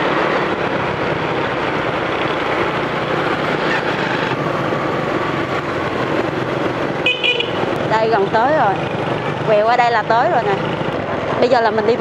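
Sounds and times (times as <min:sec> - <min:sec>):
motorbike engine running: 0:00.0 - 0:12.0.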